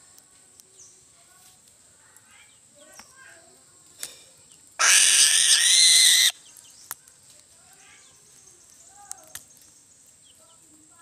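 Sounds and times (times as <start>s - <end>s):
eagle screaming: 4.8s - 6.4s.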